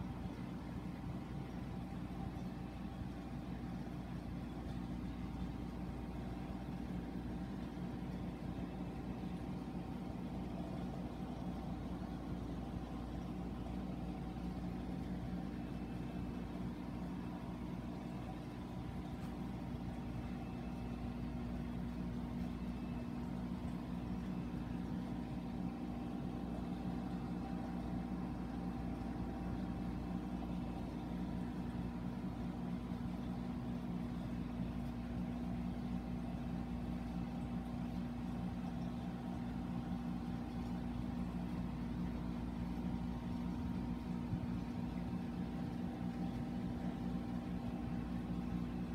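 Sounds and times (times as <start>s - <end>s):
aquarium water pumps humming: 0.0s - 48.9s.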